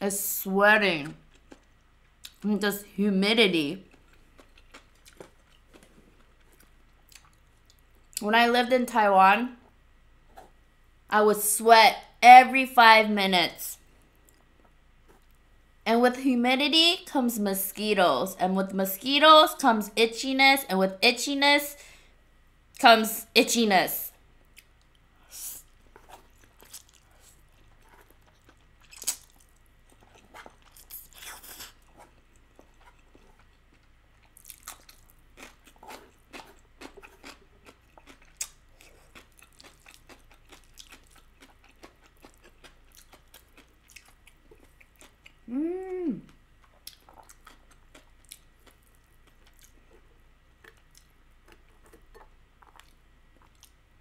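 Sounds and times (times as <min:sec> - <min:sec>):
chewing: 0:01.1 - 0:02.4, 0:03.9 - 0:08.2, 0:25.8 - 0:45.4, 0:46.2 - 0:53.8
person humming: 0:45.5 - 0:46.3.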